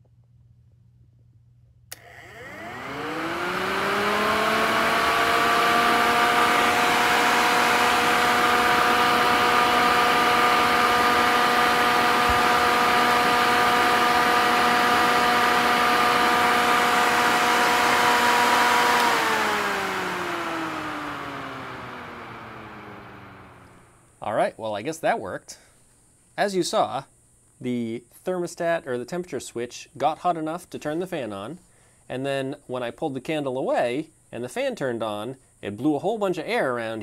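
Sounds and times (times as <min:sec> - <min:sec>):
electric fan whine: 0:01.9 - 0:24.6.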